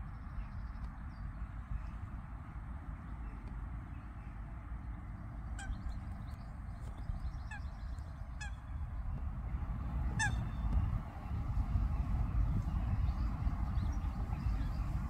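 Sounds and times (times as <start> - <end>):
steady low rumble: 0.0 - 15.0
goose honking: 10.1 - 10.5.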